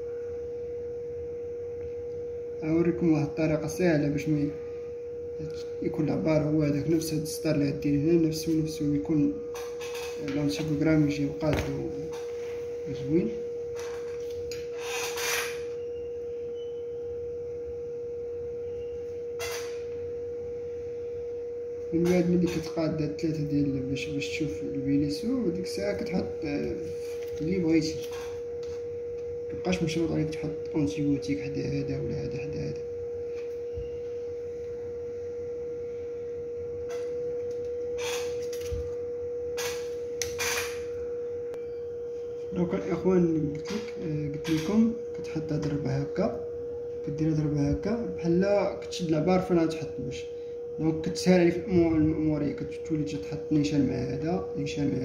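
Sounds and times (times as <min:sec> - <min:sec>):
steady high tone: 0:00.0 - 0:55.0
steady hum: 0:00.0 - 0:55.0
metal tweezers scraping: 0:14.2 - 0:15.7.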